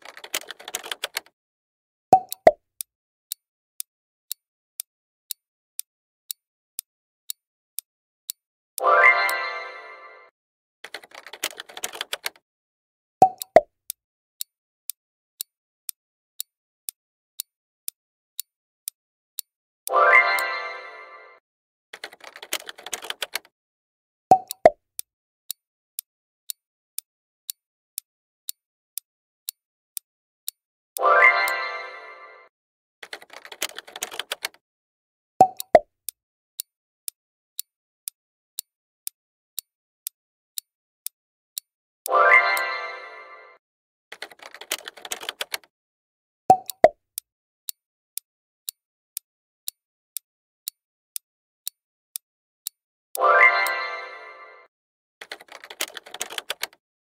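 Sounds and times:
clock ticking: 0.0 - 1.4, 2.2 - 2.6, 4.3 - 9.4, 10.8 - 12.4, 13.2 - 14.0, 17.4 - 20.6, 22.0 - 23.5, 24.3 - 29.6, 31.0 - 31.6, 33.0 - 34.6, 35.4 - 35.9, 37.6 - 42.7, 44.1 - 45.7, 46.5 - 47.8, 50.6 - 53.8, 55.2 - 56.8.

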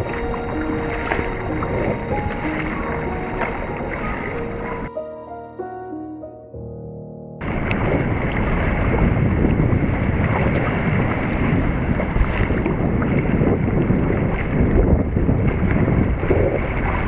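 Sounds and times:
waves breaking against rocks: 0.0 - 4.8, 7.4 - 17.0
water sloshing: 0.0 - 4.9, 7.4 - 17.0
wind on microphone: 0.0 - 4.9, 7.4 - 17.0.

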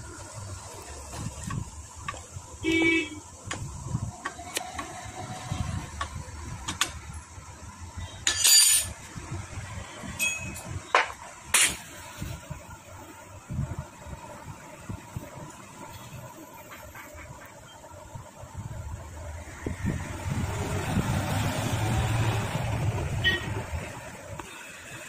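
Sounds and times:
metal engine parts clinking: 8.2 - 9.0, 10.2 - 10.7.

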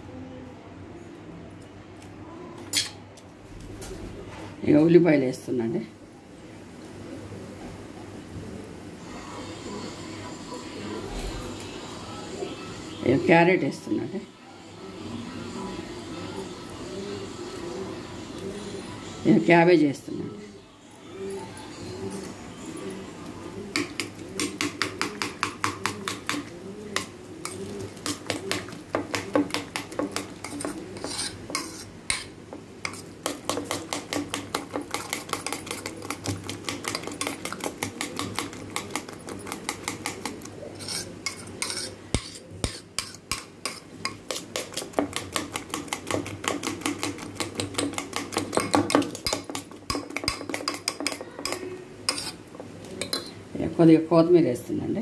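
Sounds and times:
spoon clinking against metal bowl: 32.9 - 52.4, 53.0 - 53.4.

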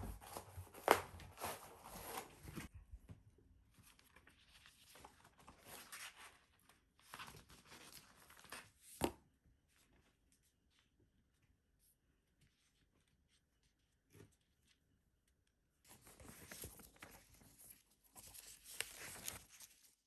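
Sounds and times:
paper sheet rustling: 15.9 - 20.0.

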